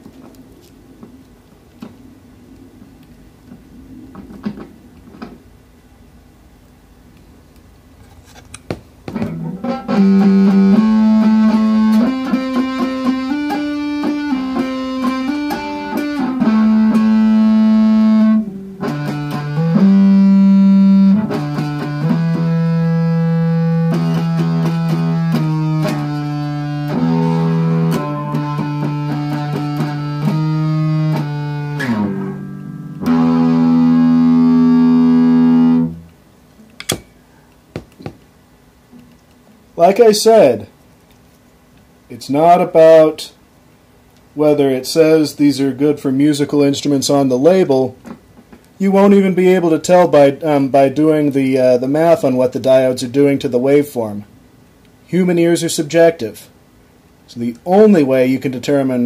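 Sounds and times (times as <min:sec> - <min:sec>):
distorted electric guitar: 0:09.2 - 0:36.2.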